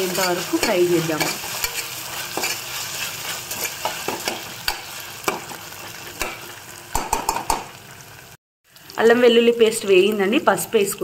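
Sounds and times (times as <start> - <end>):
metal spoon scraping a pot: 0.0 - 4.9
food sizzling in hot oil: 0.0 - 11.0
knocks on a pot: 7.0 - 7.7.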